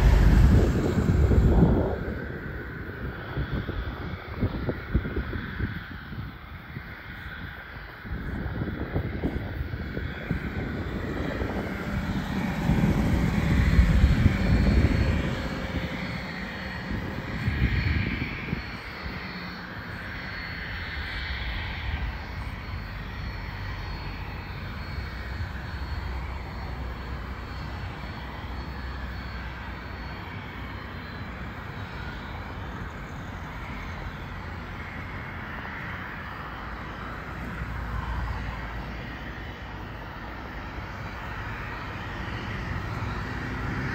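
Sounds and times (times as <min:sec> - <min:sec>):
uneven low rumbling: 0:00.0 - 0:05.1, 0:08.4 - 0:18.8
jet engines humming: 0:00.0 - 0:43.9.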